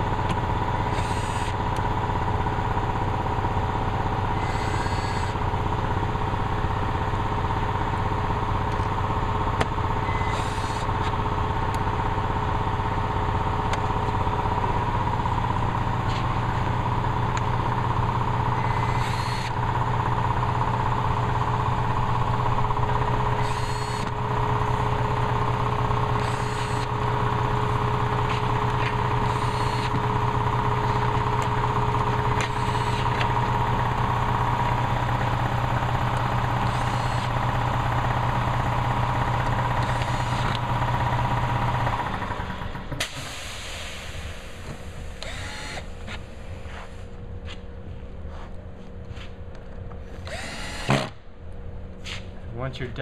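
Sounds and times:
loud steady machine hum: 0:00.0 - 0:53.0
cordless drill driving screws: 0:00.8 - 0:01.6, 0:04.4 - 0:05.4, 0:10.2 - 0:10.9, 0:18.6 - 0:19.6, 0:23.3 - 0:24.2, 0:26.1 - 0:27.0, 0:28.4 - 0:30.0, 0:32.4 - 0:33.3, 0:36.6 - 0:37.4, 0:39.8 - 0:40.6, 0:45.2 - 0:46.2, 0:50.2 - 0:51.2.

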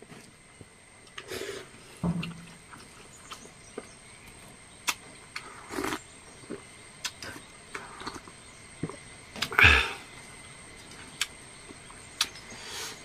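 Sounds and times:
chewing: 0:01.1 - 0:09.6
lip-smack clicks: 0:04.8 - 0:05.5
slurp from a cup: 0:05.4 - 0:06.1.

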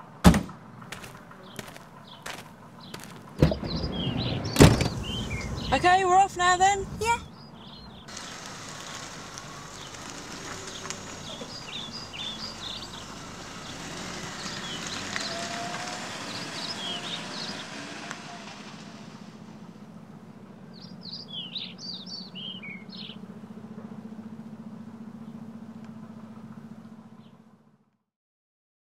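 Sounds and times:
car driving off: 0:00.0 - 0:27.9
small birds chirping: 0:00.9 - 0:19.9, 0:20.5 - 0:23.4, 0:25.1 - 0:25.5.

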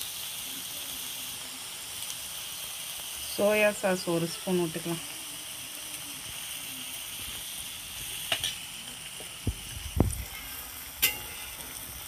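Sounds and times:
vegetables sizzling in oil: 0:00.0 - 0:12.0
steel ladle scraping a pan: 0:10.2 - 0:12.0.

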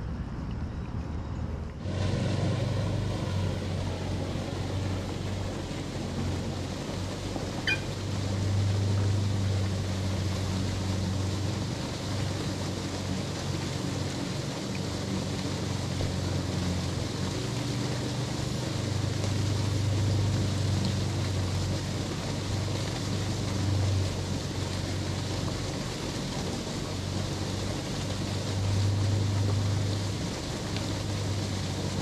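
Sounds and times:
low motor-like hum: 0:00.0 - 0:32.0
sharp high chirp: 0:07.6 - 0:08.0.

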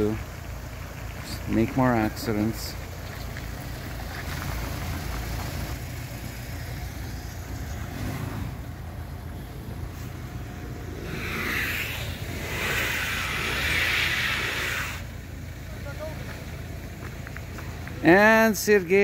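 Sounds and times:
car engine rumble: 0:00.0 - 0:19.0
hiss: 0:09.8 - 0:15.2.

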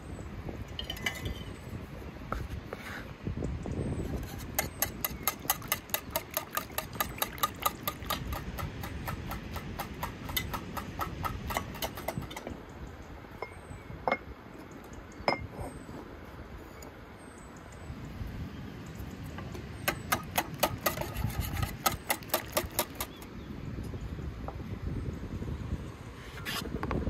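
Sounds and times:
whisk clinking against bowl: 0:04.6 - 0:12.4.

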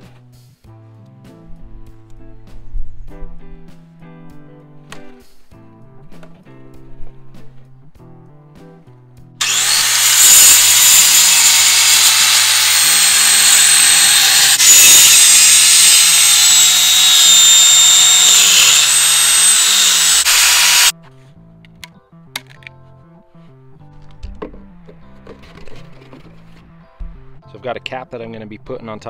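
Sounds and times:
circular saw cutting wood: 0:09.4 - 0:20.9.

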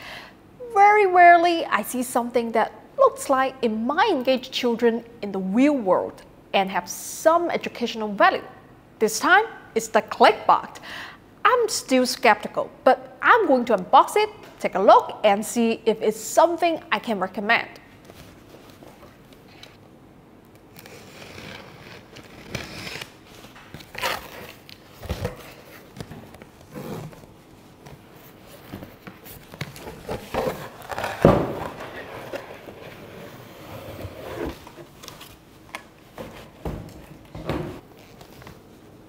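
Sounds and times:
packing tape peeling: 0:20.6 - 0:27.3, 0:29.7 - 0:32.7
cardboard rustling and scraping: 0:20.9 - 0:35.5.

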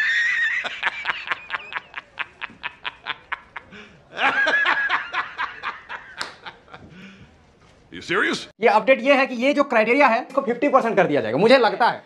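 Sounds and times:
man laughing heartily: 0:00.0 - 0:07.0.

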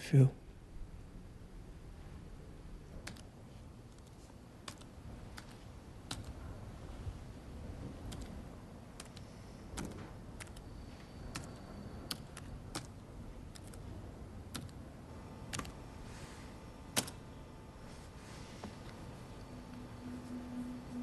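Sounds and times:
low room hum: 0:00.0 - 0:21.0
sharp light clicks and taps: 0:02.9 - 0:03.3, 0:03.9 - 0:06.4, 0:08.0 - 0:08.4, 0:09.0 - 0:13.9
faint steady tone: 0:08.4 - 0:13.4, 0:14.0 - 0:21.0.

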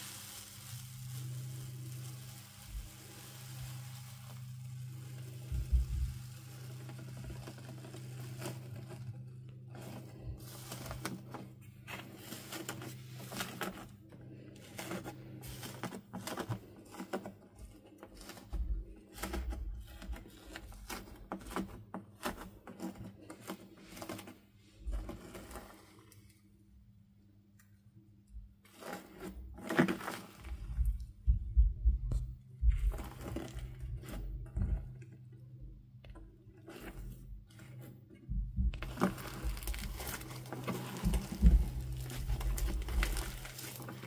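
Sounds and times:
dried slime crust crackling: 0:00.0 - 0:26.3, 0:28.6 - 0:31.2, 0:38.7 - 0:44.0.

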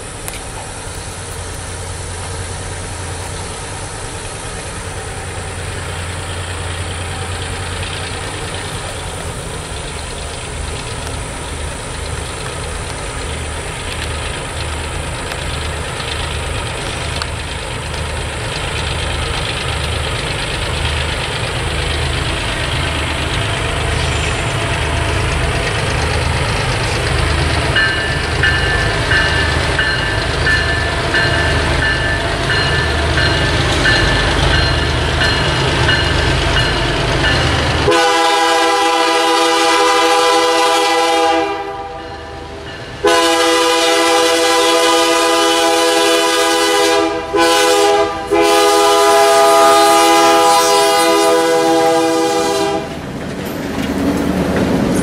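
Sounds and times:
diesel locomotive engine throbbing: 0:00.0 - 0:55.0
locomotive bell ringing: 0:21.8 - 0:38.0, 0:41.9 - 0:43.2.

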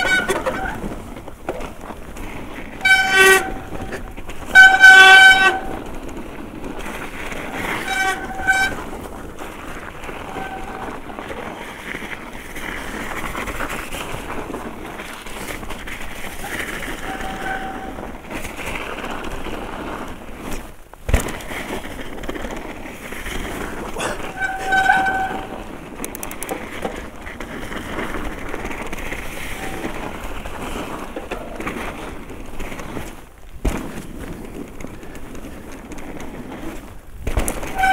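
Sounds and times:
squeaky brakes squealing: 0:00.0 - 0:00.9, 0:07.6 - 0:08.8, 0:10.1 - 0:11.0, 0:16.4 - 0:18.1, 0:24.0 - 0:25.7, 0:29.5 - 0:30.1, 0:37.7 - 0:37.9
bike tyres rolling on snow: 0:00.0 - 0:37.9.

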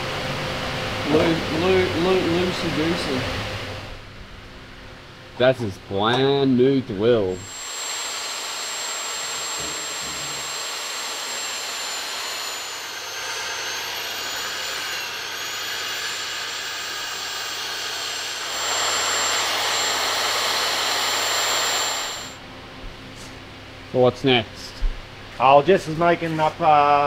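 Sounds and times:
drill cutting steel: 0:07.3 - 0:22.4
drill motor high whine: 0:07.3 - 0:22.4.

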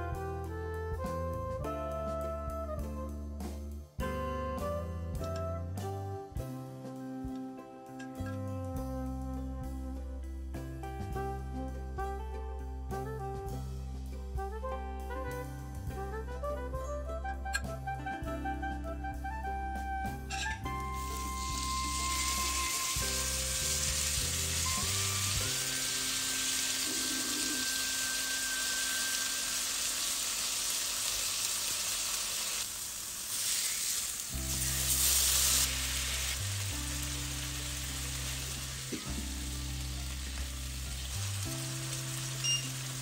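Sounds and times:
paneer sizzling in a pan: 0:20.3 - 0:43.0.

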